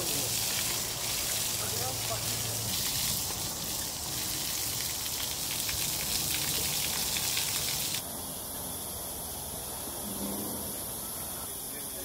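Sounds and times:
garden hose spraying water: 0.0 - 8.1.

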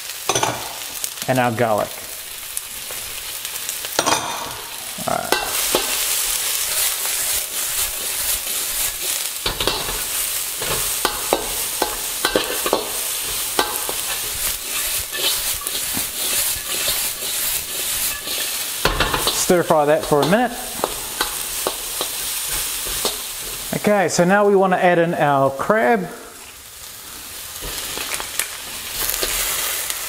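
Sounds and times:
food sizzling in oil in a wok: 0.0 - 24.4, 26.3 - 30.0
metal spatula scraping wok: 3.4 - 23.9, 27.6 - 30.0.

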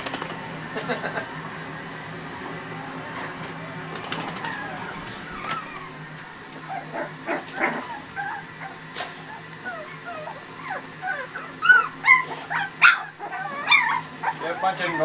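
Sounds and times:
puppies whimpering and squeaking: 1.1 - 2.0, 2.6 - 15.0
puppy yelps: 4.4 - 6.0, 6.6 - 15.0.

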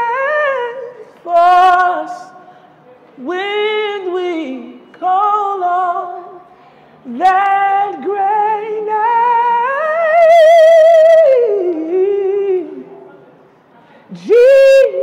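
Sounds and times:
man singing a cappella: 0.0 - 2.4, 3.2 - 6.4, 7.1 - 12.9, 14.1 - 15.0.

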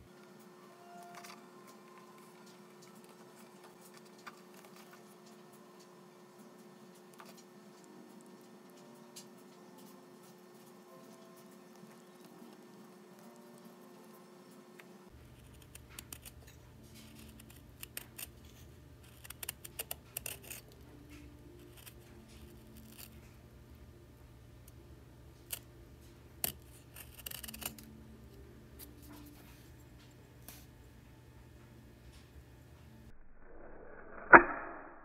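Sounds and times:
low steady hum: 0.0 - 35.0
knife blade scraping wood: 26.4 - 27.9.

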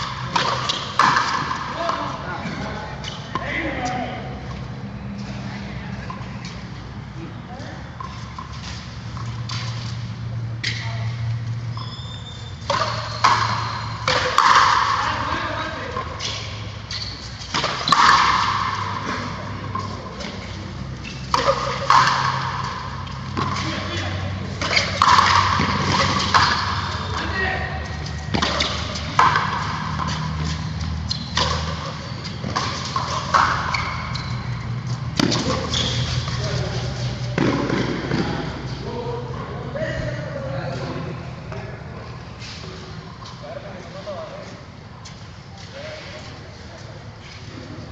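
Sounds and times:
rackets hitting a ball: 0.0 - 7.1, 7.9 - 11.9, 12.5 - 39.4
ball smacking off rackets and wall: 21.2 - 27.0, 28.3 - 30.5.

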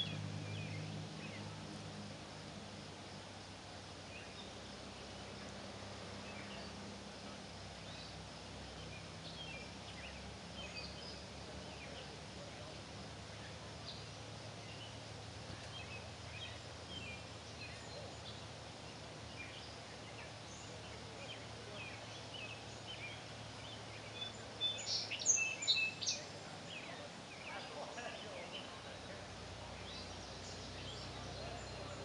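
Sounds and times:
steady background hiss: 0.0 - 32.0
birds chirping and calling: 19.3 - 28.8.

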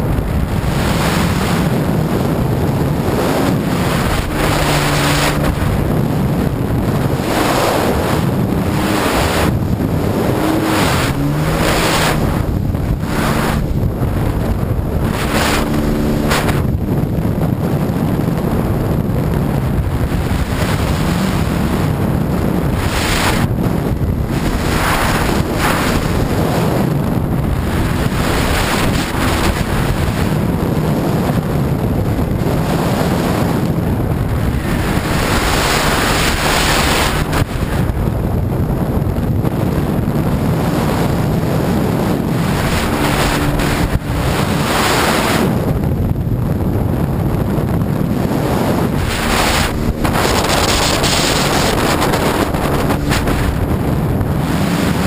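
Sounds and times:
jet ski engine drone: 0.0 - 55.0
wind buffeting on microphone: 0.0 - 55.0
rushing water spray: 3.2 - 5.8, 7.2 - 13.8, 24.2 - 26.8, 34.4 - 37.8, 42.3 - 45.5, 48.8 - 53.7.

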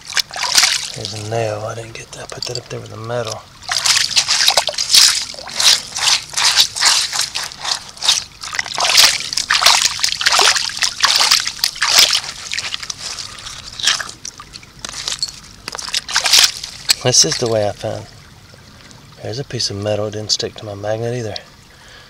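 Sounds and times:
water sloshing and splashing: 0.0 - 19.4
hand stirring through gravel: 3.7 - 14.2, 14.8 - 17.4.

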